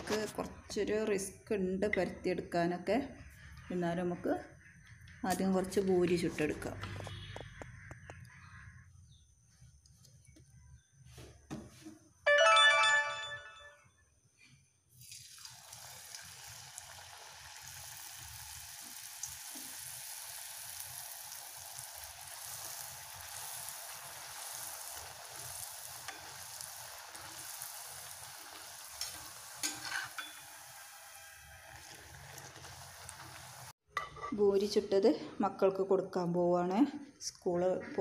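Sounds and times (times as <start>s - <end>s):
bread deep-frying in oil: 14.8s - 33.8s.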